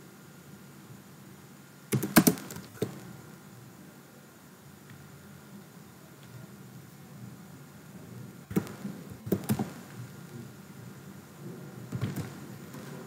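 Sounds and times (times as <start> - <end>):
faint room hiss: 0.0 - 13.0
computer keyboard keystrokes: 1.9 - 2.9, 8.5 - 9.8.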